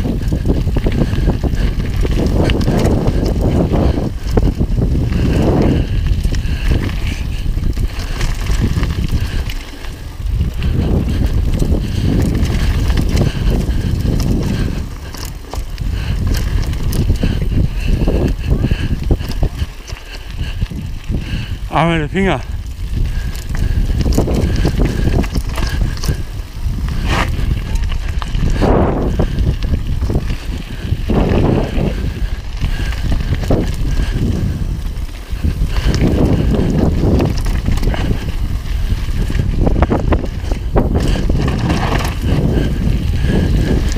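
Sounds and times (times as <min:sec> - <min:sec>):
bike rattling: 0:00.0 - 0:43.9
tyres crunching over gravel: 0:00.0 - 0:43.9
wind rumble on camera: 0:00.0 - 0:43.9
bike knocking over bumps: 0:40.8 - 0:42.6.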